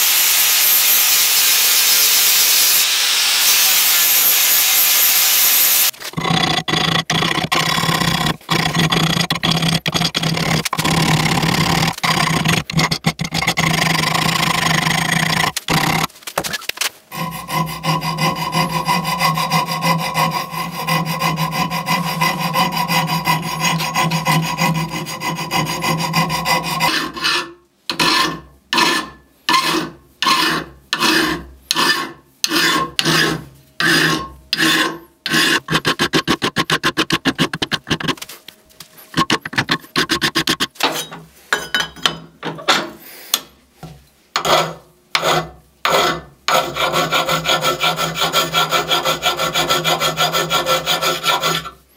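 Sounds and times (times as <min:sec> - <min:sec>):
hand file rasping on steel: 0:05.8 - 0:16.1, 0:17.1 - 0:38.2, 0:39.0 - 0:40.9, 0:44.4 - 0:51.8.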